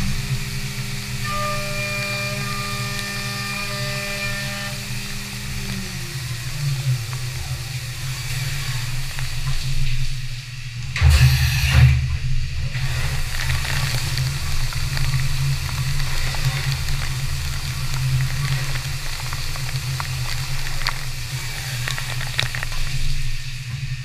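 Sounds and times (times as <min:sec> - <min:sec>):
coolant spray hissing: 0:00.0 - 0:24.0
machine hum: 0:00.0 - 0:24.0
rushing burst: 0:11.0 - 0:24.0.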